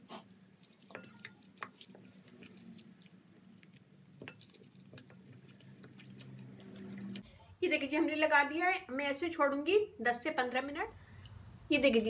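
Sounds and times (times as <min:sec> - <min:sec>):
wet squishing of kneading: 0:00.0 - 0:07.3.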